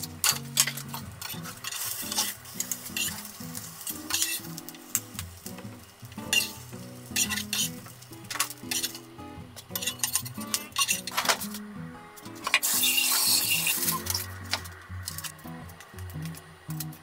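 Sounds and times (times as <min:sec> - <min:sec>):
spatula scraping a pan: 0:00.0 - 0:05.2, 0:06.2 - 0:09.1, 0:09.7 - 0:11.6, 0:12.4 - 0:15.3
soft background music: 0:00.0 - 0:17.0
tofu sizzling in a frying pan: 0:00.0 - 0:17.0.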